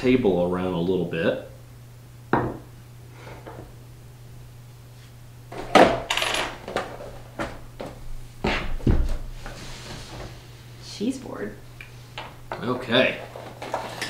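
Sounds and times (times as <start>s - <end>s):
glasses knocking on wooden table: 2.3s - 2.6s
coin clattering on wood: 6.0s - 6.8s.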